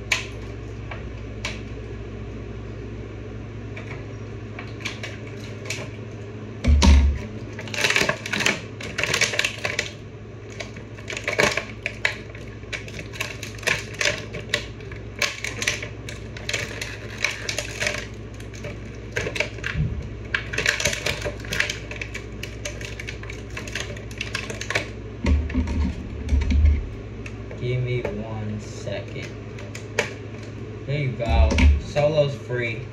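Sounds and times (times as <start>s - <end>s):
toy packaging crinkling: 7.6s - 24.9s.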